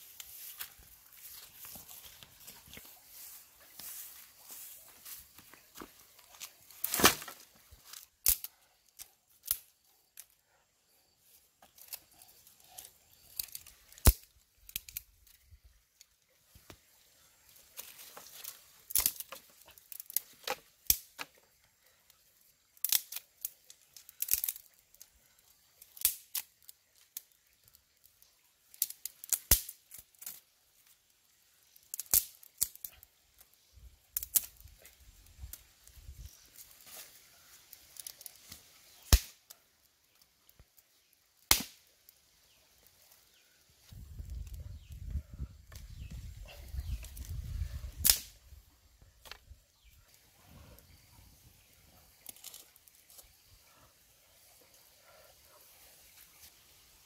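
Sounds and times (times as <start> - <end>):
rustling of dry twigs and leaves: 0.0 - 57.0
dry sticks snapping: 5.4 - 10.4, 11.6 - 15.4, 17.7 - 21.4, 22.7 - 25.1, 25.8 - 27.4, 28.7 - 30.4, 31.7 - 33.5, 34.1 - 36.0, 36.6 - 41.9, 48.0 - 48.4, 49.2 - 49.4, 52.2 - 53.3.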